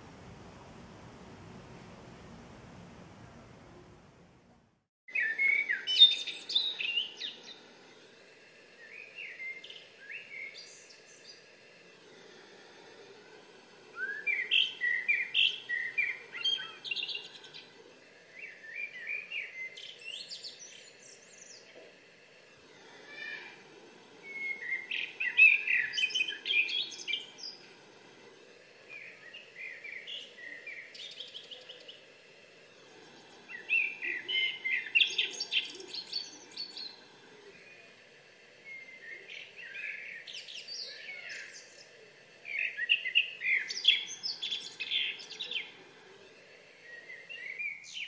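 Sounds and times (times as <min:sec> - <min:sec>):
birdsong from a speaker: 0:05.1 - 0:07.8, 0:08.8 - 0:11.5, 0:13.4 - 0:28.0, 0:28.8 - 0:48.0
bird singing: 0:05.1 - 0:12.5, 0:13.4 - 0:48.0.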